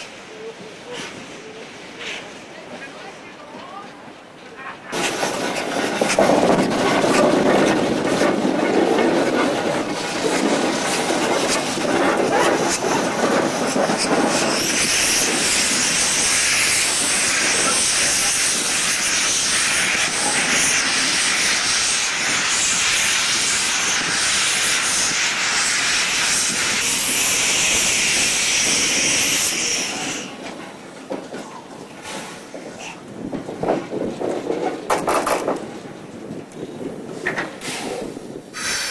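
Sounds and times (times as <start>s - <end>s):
locomotive rumbling on rails: 0.0s - 38.9s
steam locomotive hissing: 4.9s - 30.9s, 36.6s - 38.9s.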